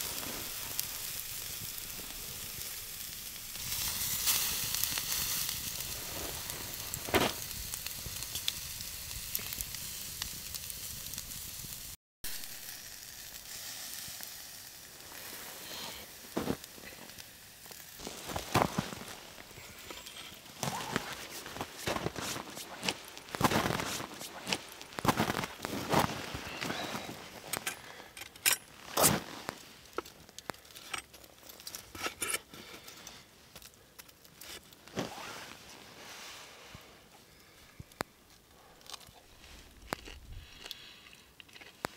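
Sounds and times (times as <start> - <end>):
meat sizzling on a grill: 0.0 - 27.5
jacket rustling: 18.0 - 29.8, 34.8 - 36.6
sharp pops: 20.4 - 26.4.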